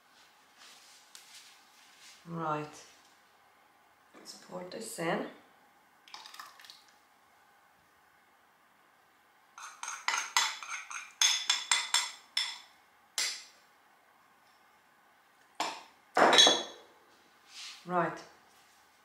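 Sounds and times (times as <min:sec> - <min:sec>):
metal spoon clinking on bowl: 0:09.6 - 0:12.6.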